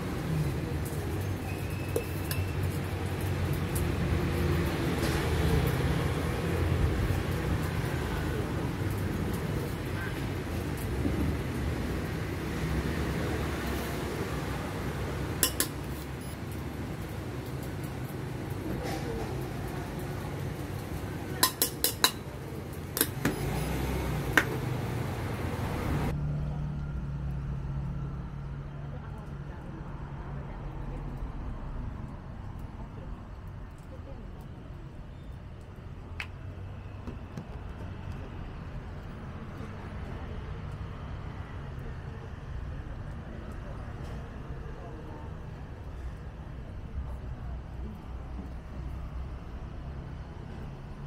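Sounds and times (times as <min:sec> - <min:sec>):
street traffic rumble: 0:00.0 - 0:51.0
metal spoon clinking on tin: 0:21.4 - 0:22.3.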